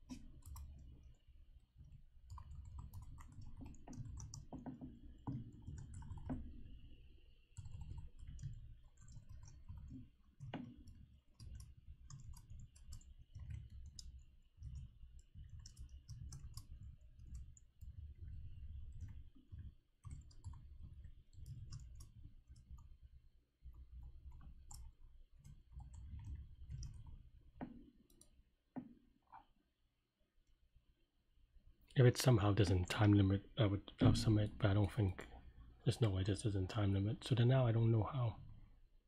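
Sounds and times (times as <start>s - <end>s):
keyboard typing clicks: 2.3s - 6.6s, 7.5s - 18.0s.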